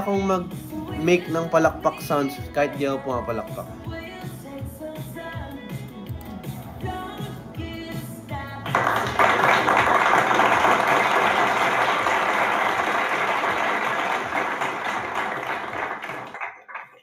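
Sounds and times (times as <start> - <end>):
crowd applause: 8.7 - 17.0.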